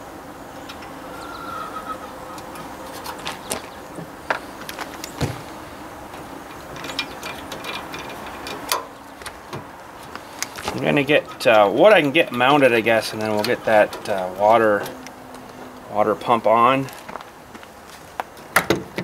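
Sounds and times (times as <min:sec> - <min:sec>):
metal clicks and knocks: 0:06.1 - 0:09.7.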